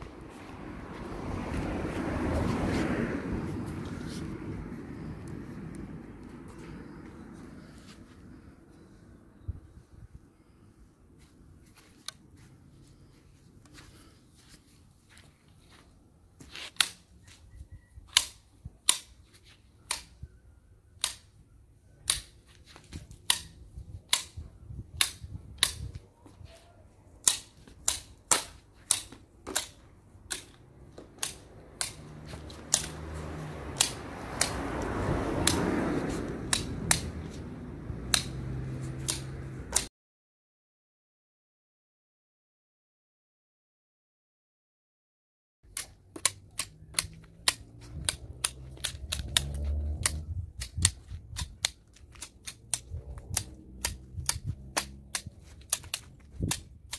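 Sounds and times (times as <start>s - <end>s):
pruning shears snipping stems: 16.6s - 17.2s, 18.1s - 20.2s, 21.0s - 21.4s, 22.0s - 24.4s, 27.2s - 39.9s, 45.7s - 56.9s.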